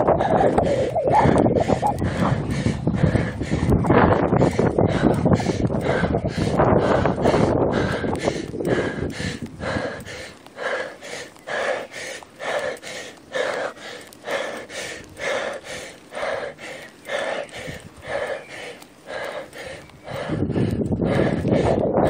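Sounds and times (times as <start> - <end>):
wind rumble on microphone: 0.0 - 11.8, 16.2 - 22.0
cyclist breathing hard: 0.0 - 22.0.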